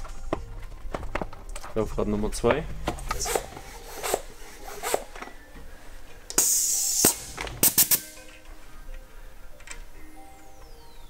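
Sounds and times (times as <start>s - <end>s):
background music: 0.0s - 11.0s
air hiss from pump valve: 6.3s - 8.2s.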